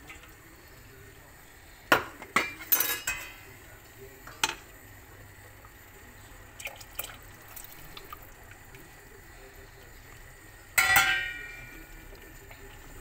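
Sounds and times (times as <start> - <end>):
kitchenware clinking on metal pot: 1.9 - 3.4, 10.8 - 11.8.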